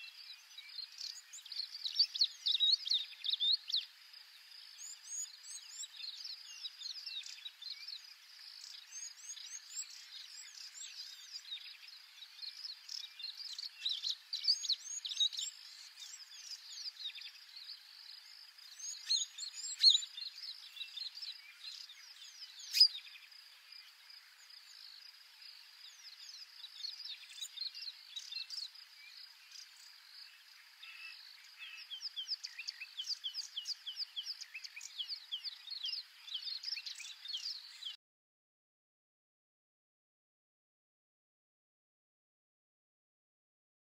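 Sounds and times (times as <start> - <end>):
small birds chirping: 0.0 - 38.0.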